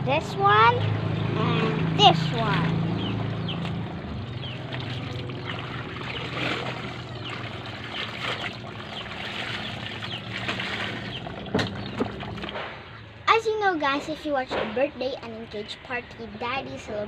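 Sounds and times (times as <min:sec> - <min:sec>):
water sloshing and splashing: 0:01.8 - 0:13.2
clothes scrubbed in soapy water: 0:04.5 - 0:12.5.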